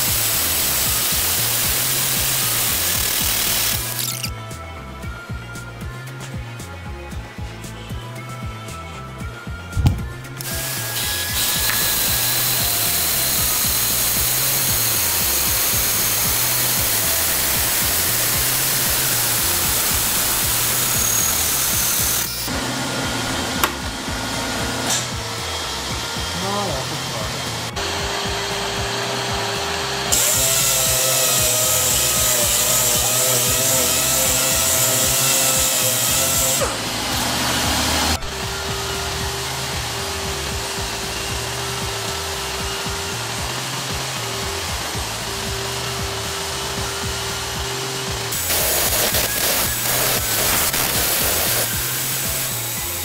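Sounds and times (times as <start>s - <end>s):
air sander hissing: 0.0s - 4.3s, 9.8s - 53.0s
sander winding down whine: 0.0s - 4.3s, 10.4s - 53.0s
brake lathe cutting rotor: 0.0s - 4.4s, 10.4s - 53.0s
background music: 0.0s - 53.0s.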